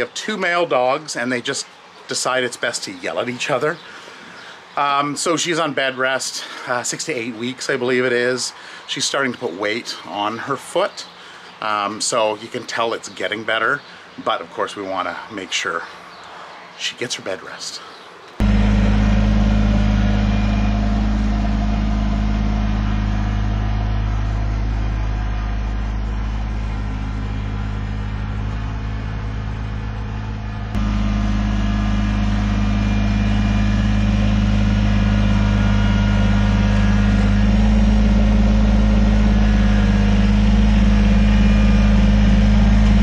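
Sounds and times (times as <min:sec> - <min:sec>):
tractor diesel engine running: 0:18.4 - 0:43.0.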